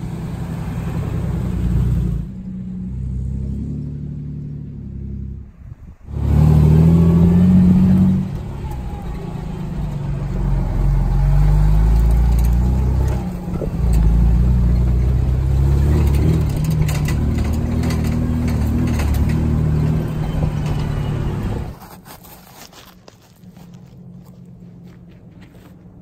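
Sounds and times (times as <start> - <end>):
vehicle engine under load: 0.0 - 26.0
knocks and rattles: 11.7 - 21.8.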